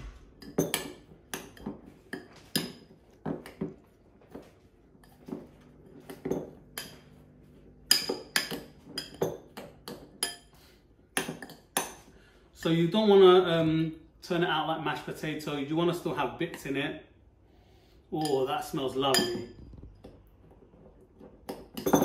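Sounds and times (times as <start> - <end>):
metal utensil clinking on glass bowl: 19.1 - 19.5.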